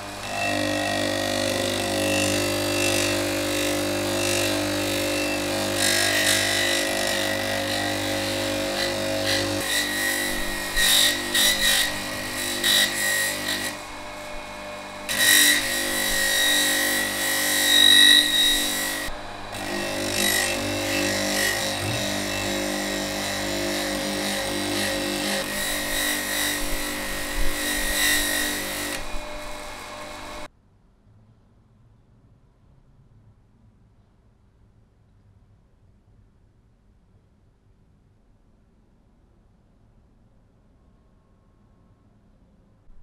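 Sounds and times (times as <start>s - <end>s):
electric motor hum: 0.0s - 30.5s.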